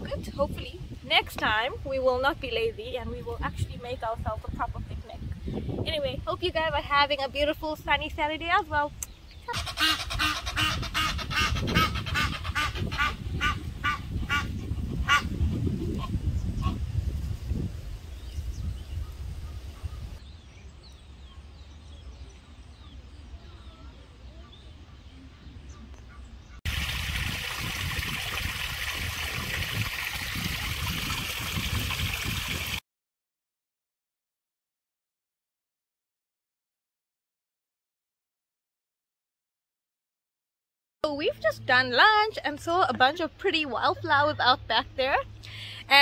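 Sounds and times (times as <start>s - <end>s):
geese honking: 9.5s - 15.6s
stream trickling over rocks: 26.7s - 32.8s.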